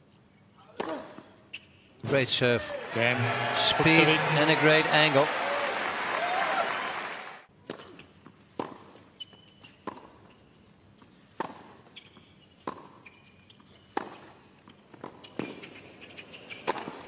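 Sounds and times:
hushed crowd: 2.8s - 7.4s.

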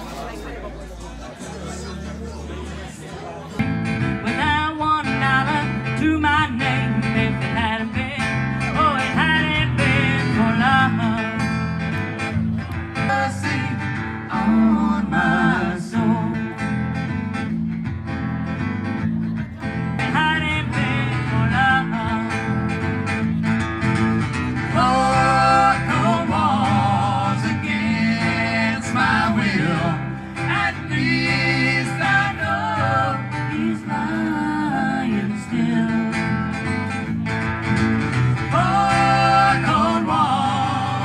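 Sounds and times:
acoustic guitar: 0.0s - 41.0s.

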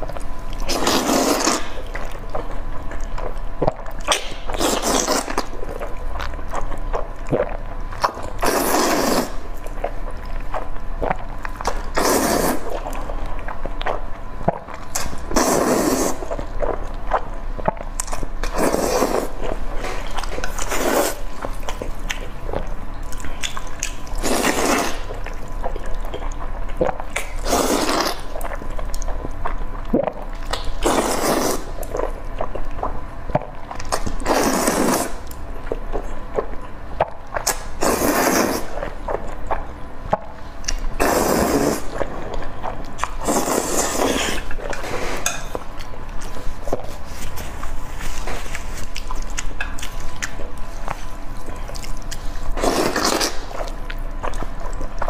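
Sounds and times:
wet chewing: 0.0s - 55.0s
person slurping noodles: 0.7s - 1.8s, 4.5s - 5.5s, 8.4s - 9.4s, 11.9s - 12.8s, 14.5s - 16.4s, 18.5s - 21.2s, 24.2s - 25.1s, 27.4s - 28.4s, 30.8s - 31.8s, 34.2s - 35.2s, 37.8s - 38.7s, 41.0s - 42.0s, 43.2s - 45.4s, 52.6s - 53.5s.

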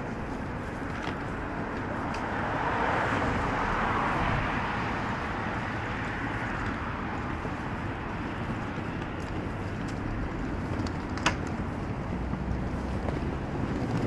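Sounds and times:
car passing: 0.0s - 14.0s
city street traffic: 0.0s - 14.0s.

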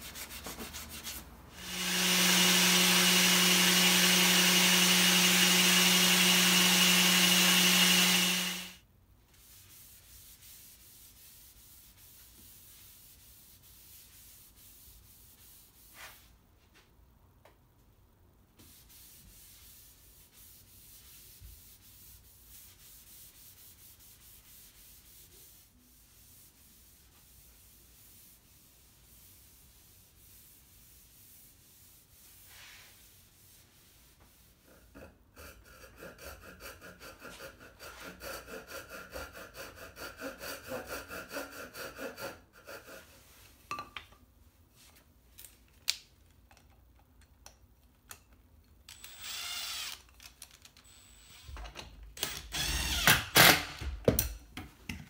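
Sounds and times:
cloth rag rubbing wood: 0.0s - 1.3s, 9.4s - 16.4s, 18.6s - 35.6s.

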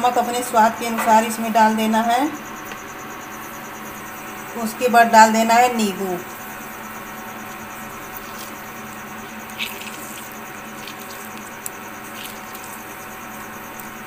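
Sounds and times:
insects chirping: 0.0s - 14.0s
hand mixing rice in steel bowl: 7.5s - 14.0s.

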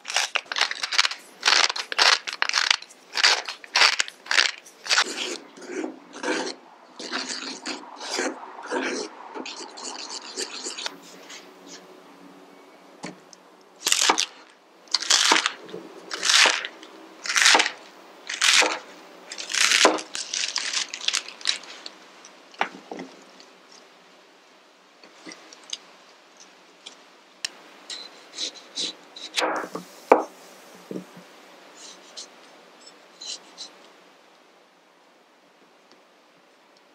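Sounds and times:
lettuce rustling: 0.0s - 8.2s, 13.8s - 22.0s
knife slicing crisp lettuce: 16.2s - 17.8s.

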